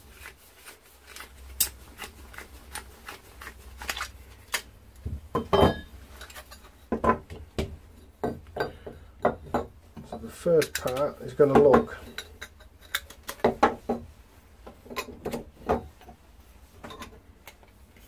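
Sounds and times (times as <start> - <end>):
pipe cutter clicking and scraping: 1.1 - 4.7, 10.1 - 11.2, 12.0 - 13.5
copper pieces knocking on wooden bench: 6.9 - 10.1.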